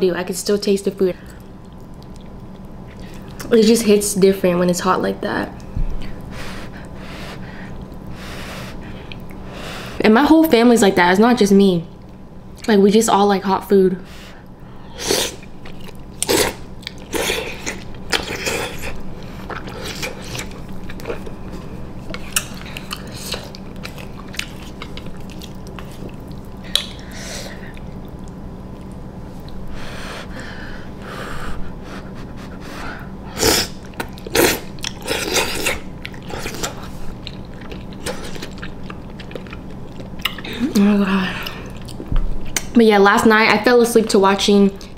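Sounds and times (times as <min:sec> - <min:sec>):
person slurping and chewing noodles: 0:33.3 - 0:40.7.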